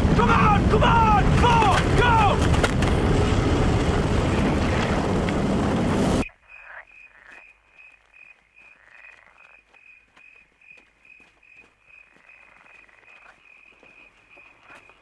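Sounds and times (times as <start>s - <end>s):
loud rushing noise: 0.0s - 6.2s.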